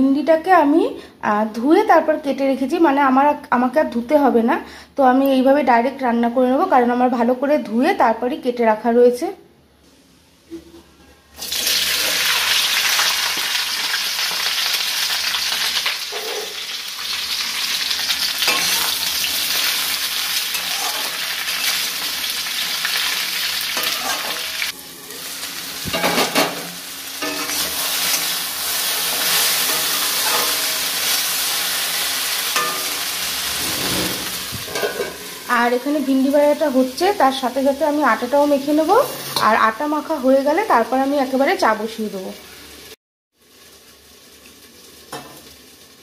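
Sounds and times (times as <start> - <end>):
okra sizzling in hot oil: 11.4 - 46.0
metal spatula scraping pan: 16.1 - 16.6, 18.4 - 19.7, 20.5 - 21.9, 23.8 - 25.3, 25.9 - 31.9, 32.5 - 35.5, 39.0 - 39.6.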